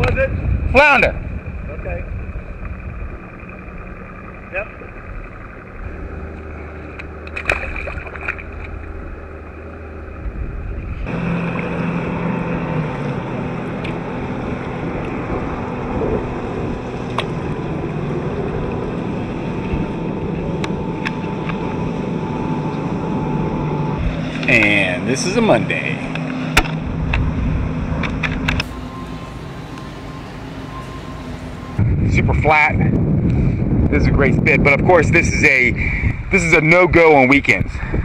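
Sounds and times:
wind on microphone: 0.0s - 3.8s, 10.0s - 24.4s, 31.5s - 38.0s
motorboat engines droning: 0.0s - 38.0s
waves: 6.4s - 22.8s.

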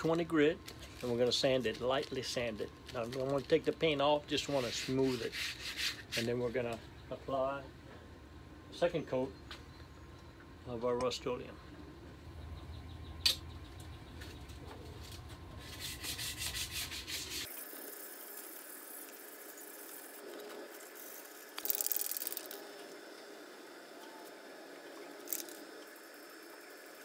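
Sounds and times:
hand sanding scratchy strokes: 4.3s - 6.6s, 15.6s - 17.5s.

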